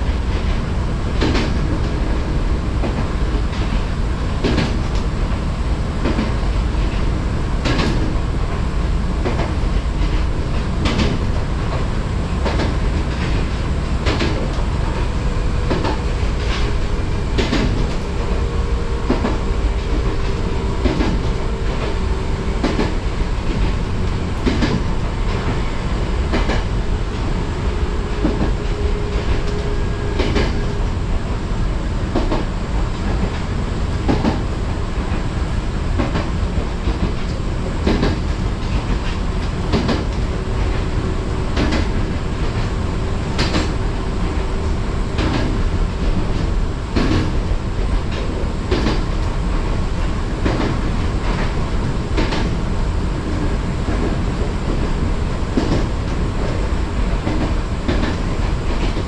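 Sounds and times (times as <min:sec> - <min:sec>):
train rumble: 0:00.0 - 0:59.0
wheels clacking over rail joints: 0:09.2 - 0:27.4.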